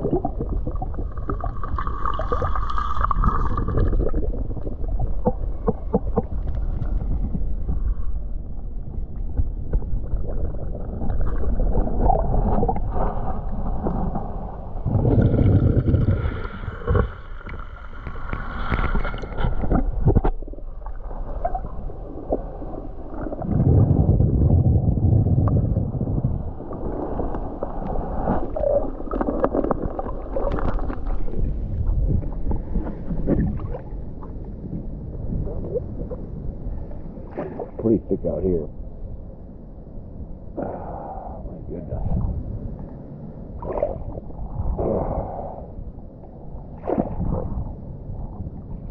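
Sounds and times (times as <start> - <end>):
underwater swishing and gurgling: 0.0 - 48.9
snorkel breathing: 12.1 - 20.0, 40.5 - 42.4, 44.6 - 46.0.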